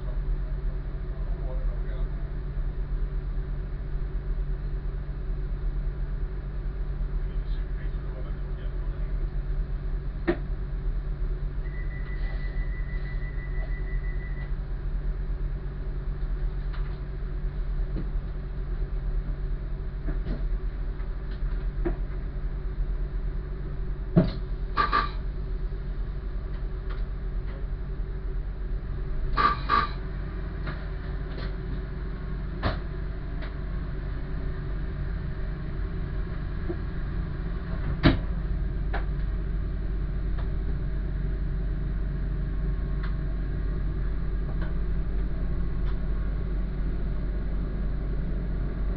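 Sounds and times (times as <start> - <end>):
diesel engine idling: 0.0 - 48.9
short beeping: 11.6 - 14.5.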